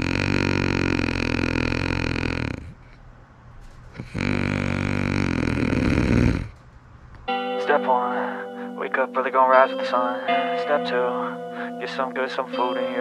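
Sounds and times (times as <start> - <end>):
person snoring: 0.0 - 2.8, 4.0 - 6.6.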